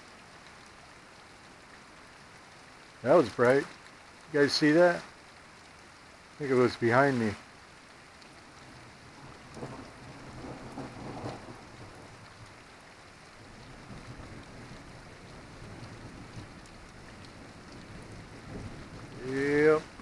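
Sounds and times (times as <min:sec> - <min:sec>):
steady rain: 0:00.0 - 0:20.0
thunder rumbling: 0:09.2 - 0:12.3, 0:13.4 - 0:20.0.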